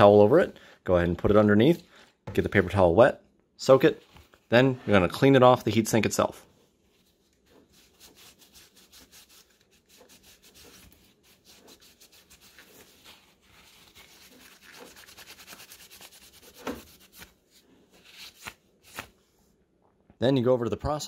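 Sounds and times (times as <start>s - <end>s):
paper towel rubbing on metal: 6.8s - 19.1s.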